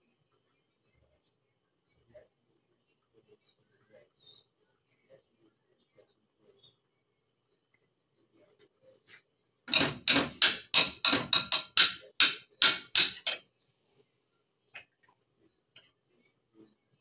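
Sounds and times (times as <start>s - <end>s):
sharp knocks on hard surface: 9.7s - 13.4s.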